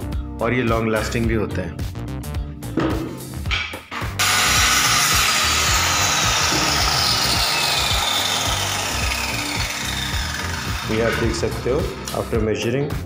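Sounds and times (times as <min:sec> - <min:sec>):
power tool cutting wood: 0:04.2 - 0:12.4.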